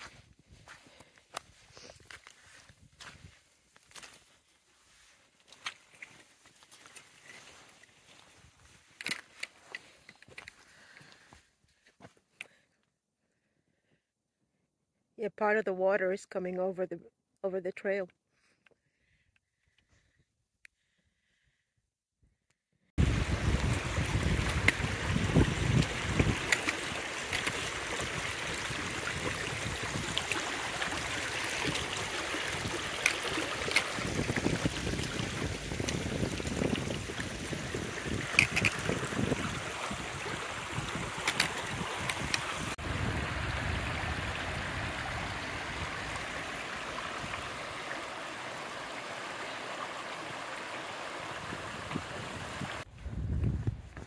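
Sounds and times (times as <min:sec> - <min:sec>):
water rushing over rocks: 0:23.0 - 0:52.9.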